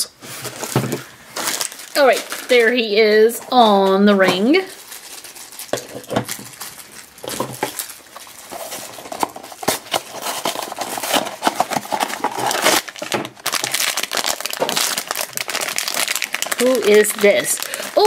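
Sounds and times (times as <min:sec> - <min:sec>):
foil bag crinkling: 0:00.2 - 0:18.0
cardboard box opening: 0:08.4 - 0:13.9.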